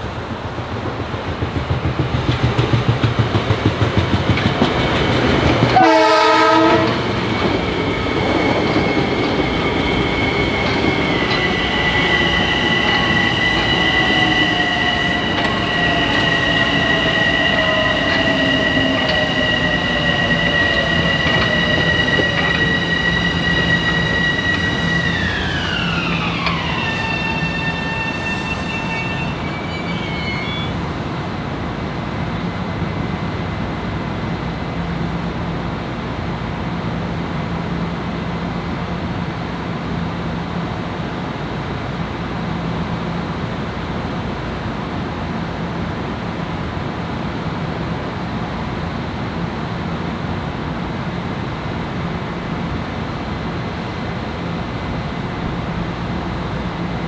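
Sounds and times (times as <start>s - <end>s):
high steady train whine: 0.0s - 57.0s
train wheels clattering: 0.8s - 28.1s
train horn blast: 5.8s - 7.1s.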